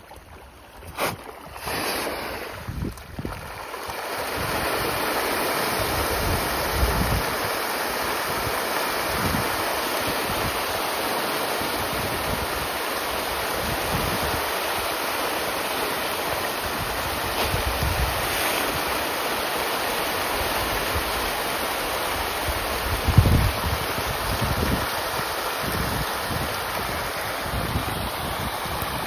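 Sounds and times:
fish splashing in water: 0.0 - 22.6
wind on microphone: 0.2 - 10.8, 13.4 - 14.6, 16.5 - 19.0, 22.2 - 29.0.

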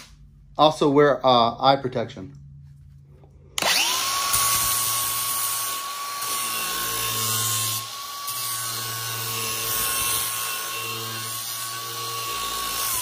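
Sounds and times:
angle grinder whining: 3.5 - 13.0.

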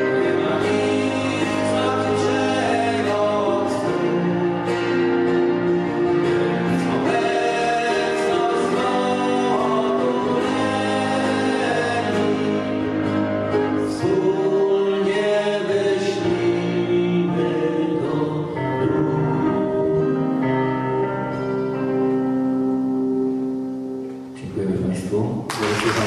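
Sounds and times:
man singing: 0.0 - 5.1, 6.2 - 20.2
acoustic guitar: 0.0 - 26.0
keyboard chords: 0.0 - 26.0.

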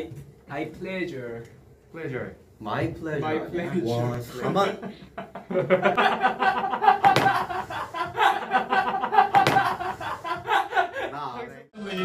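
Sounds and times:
young men laughing: 4.2 - 11.6
hand clap or slap: 7.0 - 7.5, 9.3 - 9.8.

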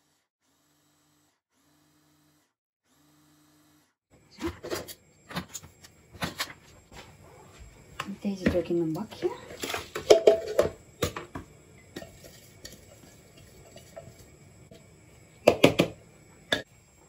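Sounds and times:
electric chopper motor grinding: 0.0 - 4.0.

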